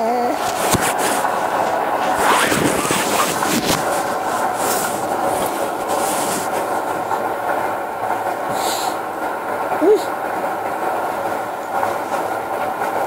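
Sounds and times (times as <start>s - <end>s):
rubbing on covered microphone: 0.4s - 7.2s.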